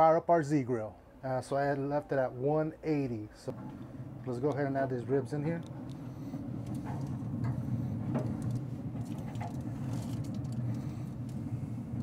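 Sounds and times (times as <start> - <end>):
pellet grill fan humming: 0.0 - 12.0.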